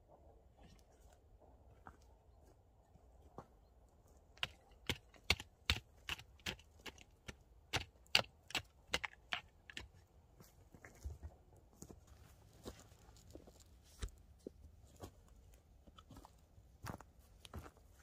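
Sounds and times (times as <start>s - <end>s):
hard objects knocking on stones: 4.4s - 9.9s.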